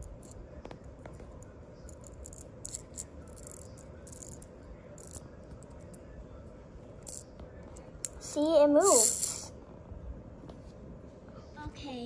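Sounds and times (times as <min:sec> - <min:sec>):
low steady hum: 0:00.0 - 0:12.0
plastic toy gears clicking: 0:01.9 - 0:04.4, 0:05.0 - 0:05.2.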